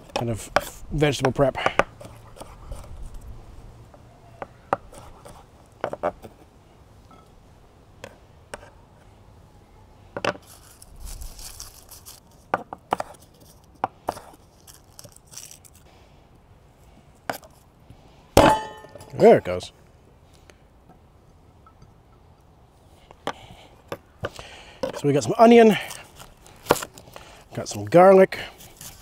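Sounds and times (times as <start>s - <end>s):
blade scraping board: 1.6s - 3.2s.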